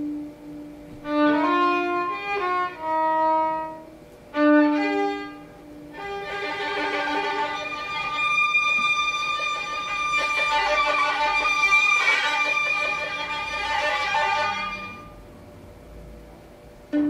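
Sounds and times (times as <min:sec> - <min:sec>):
violin bowed notes: 0:00.9 - 0:15.3.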